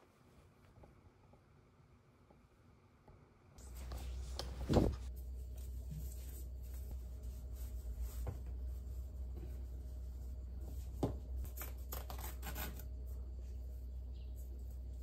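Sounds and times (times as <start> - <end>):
low steady hum: 0.0 - 15.0
cloth rustling: 3.6 - 11.0.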